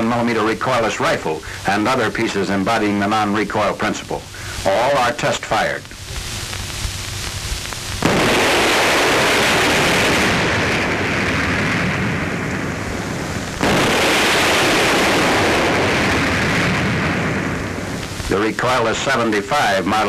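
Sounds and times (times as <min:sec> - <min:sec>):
recoilless rifle blasts: 0:08.0 - 0:18.2.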